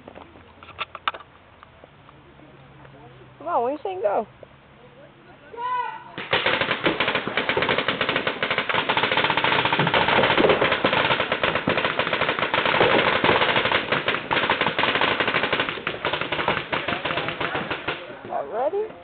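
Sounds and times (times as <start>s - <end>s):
paintball markers firing rapidly: 6.2s - 18.1s.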